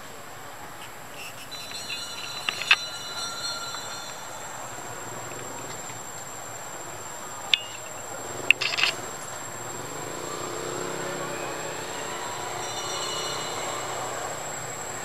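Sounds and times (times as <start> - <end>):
high-pitched insect drone: 0.8 - 15.0
sharp clicks: 1.2 - 2.9, 7.5 - 9.3.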